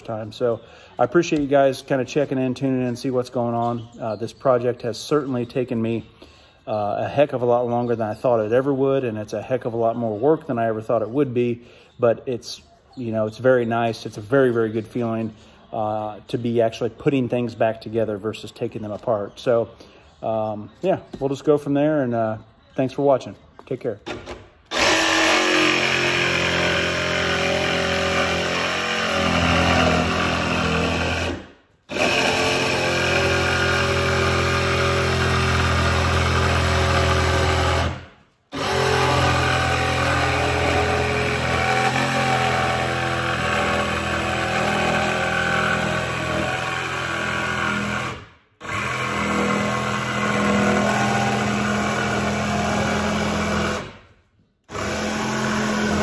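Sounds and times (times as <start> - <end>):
jigsaw cutting plywood: 24.7 - 54.0, 54.7 - 56.0.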